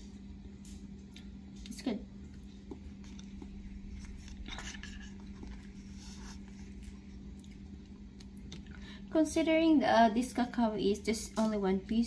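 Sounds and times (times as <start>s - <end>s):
low hum: 0.0s - 12.0s
soft squishing of beans by hand: 0.5s - 9.5s.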